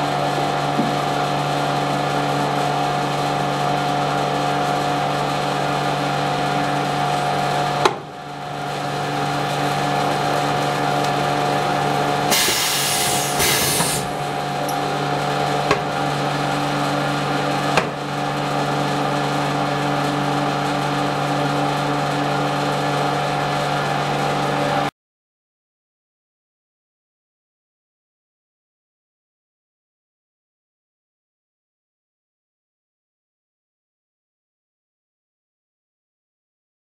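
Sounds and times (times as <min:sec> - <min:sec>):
machine mechanical hum: 0:00.0 - 0:24.9
hiss of air: 0:12.3 - 0:14.2.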